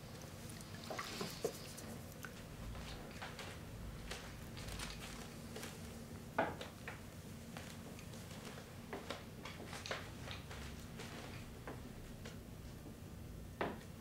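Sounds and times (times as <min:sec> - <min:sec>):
faint steady hum: 0:00.0 - 0:14.0
shaving brush in lather: 0:00.8 - 0:02.0.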